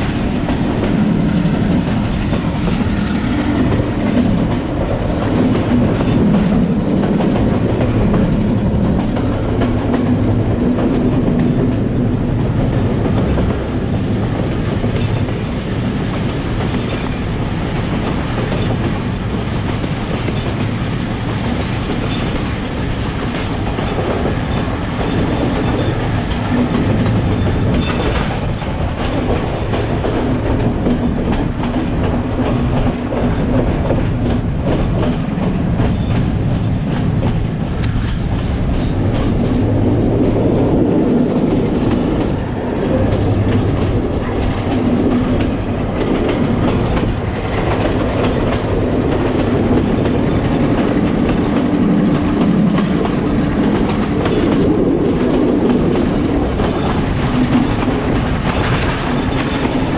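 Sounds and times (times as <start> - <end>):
rail clicks clattering: 0.0 - 59.9
train wheels rumbling on track: 0.0 - 59.9.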